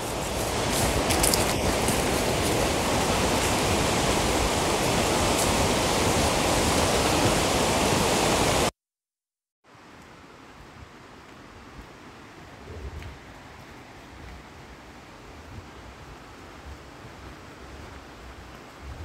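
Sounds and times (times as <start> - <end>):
river water rushing: 0.0 - 8.7.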